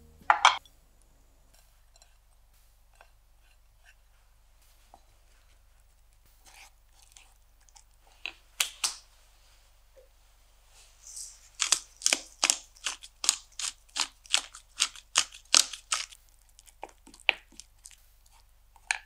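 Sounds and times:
pepper mill grinding: 0:11.2 - 0:19.0.

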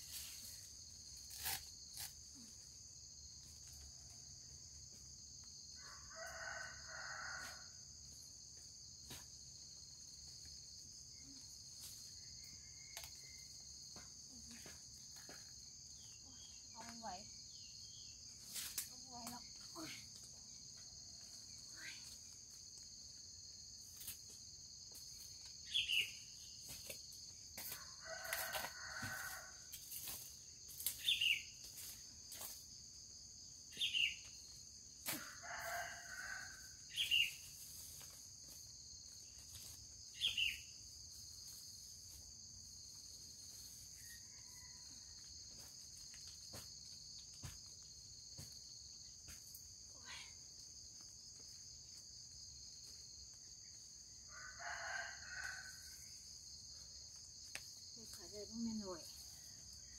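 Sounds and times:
high insect drone: 0:00.0 - 0:59.9
rooster crowing: 0:05.8 - 0:07.8, 0:27.9 - 0:29.7, 0:35.2 - 0:36.8, 0:54.2 - 0:56.1.

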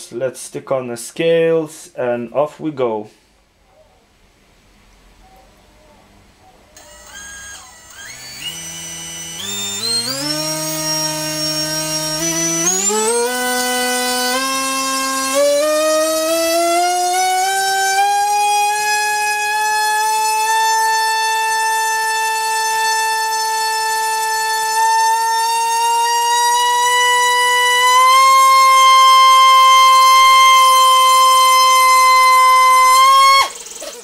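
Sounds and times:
electric motor propeller whine: 0:06.8 - 0:34.0.

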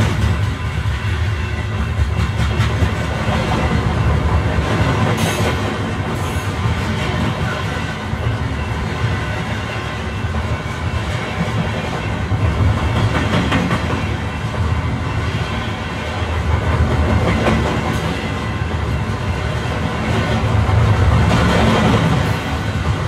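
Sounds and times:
sharp knocks of train wheels: 0:00.0 - 0:08.4, 0:10.7 - 0:14.6
train rumbling on tracks: 0:00.0 - 0:23.0.

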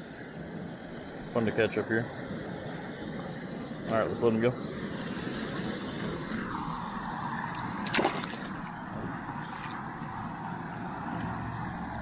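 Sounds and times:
short splash: 0:07.8 - 0:08.7.

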